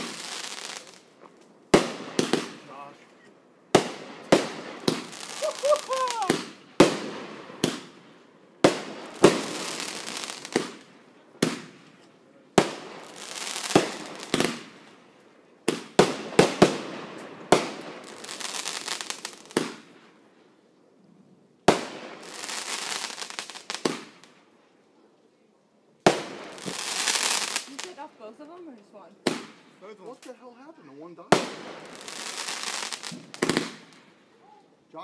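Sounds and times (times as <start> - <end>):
fireworks bangs: 0.0 - 1.1, 1.7 - 3.1, 3.7 - 14.9, 15.6 - 20.1, 21.6 - 24.4, 26.0 - 28.2, 29.2 - 29.7, 31.3 - 34.2
fireworks crackling hiss: 0.0 - 20.6, 21.6 - 24.5, 26.0 - 34.4.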